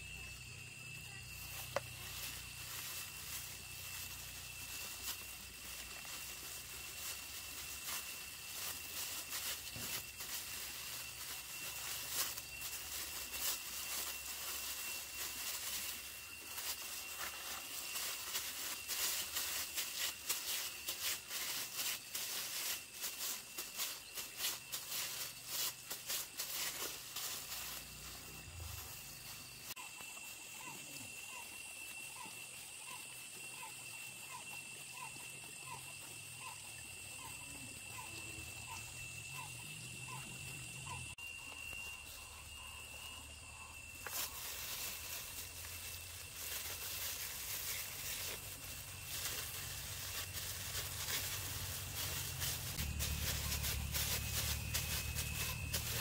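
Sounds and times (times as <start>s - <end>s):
plastic gloves crinkling: 1.7s - 28.1s, 43.9s - 56.0s.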